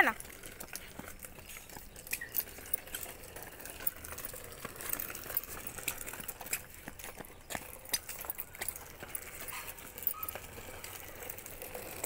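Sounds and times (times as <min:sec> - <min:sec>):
footsteps on gritty pavement: 0:00.0 - 0:12.0.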